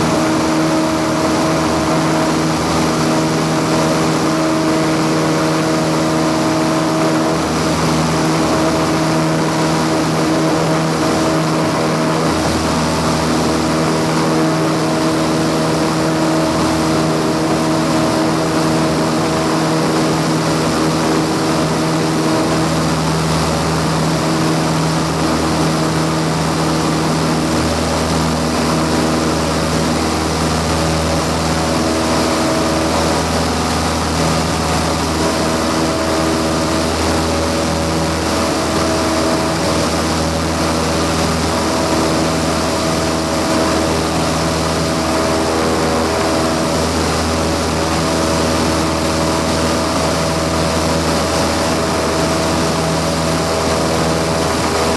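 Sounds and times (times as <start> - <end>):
aircraft engine and propeller drone: 0.0 - 54.9.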